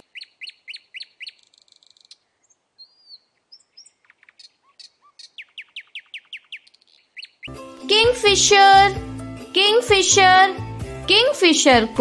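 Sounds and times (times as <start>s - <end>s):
nightingale singing: 0.0s - 7.7s.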